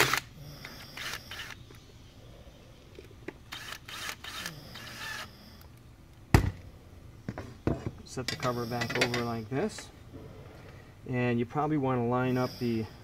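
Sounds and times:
cordless drill driving screws: 0.0s - 1.6s, 3.5s - 5.3s.

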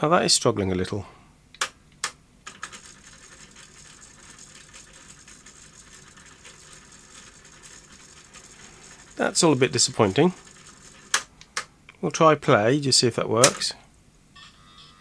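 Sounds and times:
tape winding whirr and rattle: 2.5s - 11.7s.

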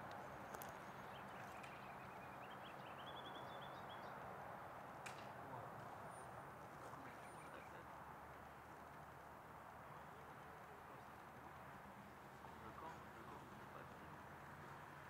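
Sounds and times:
songbird singing short notes: 0.5s - 4.1s.

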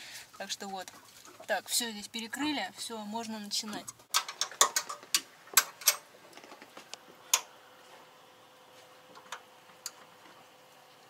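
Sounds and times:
hand tools clicking on metal clamps: 4.1s - 6.6s.

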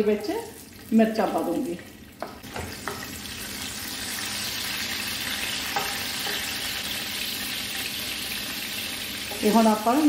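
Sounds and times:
spices sizzling in hot oil: 0.0s - 10.0s.

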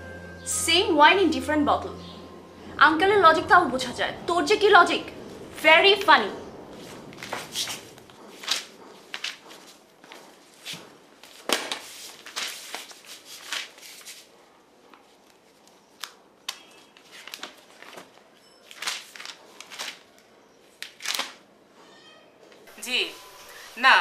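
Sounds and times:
magazine pages rustling: 6.7s - 21.4s.

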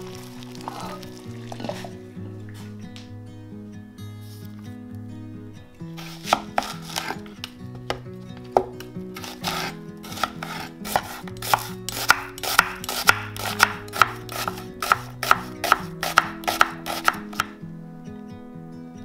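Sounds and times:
soft background music: 0.0s - 19.0s
knife chopping on cutting board: 6.0s - 7.2s, 8.6s - 17.6s.

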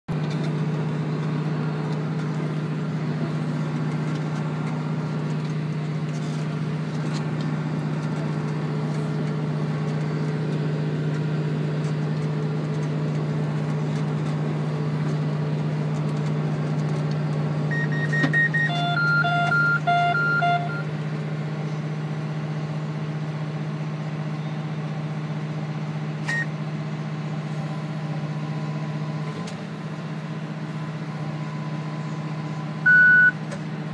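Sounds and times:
tractor engine drone: 0.1s - 33.9s
electronic alarm beeps: 17.7s - 20.9s, 32.8s - 33.4s.

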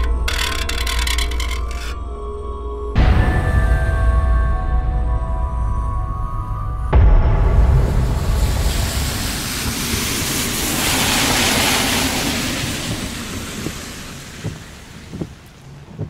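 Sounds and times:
low rumble: 2.9s - 15.5s
rushing storm: 6.9s - 16.0s.

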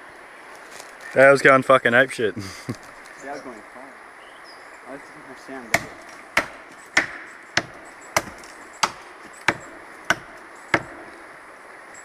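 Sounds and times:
axe chopping tree trunk: 5.6s - 11.2s.

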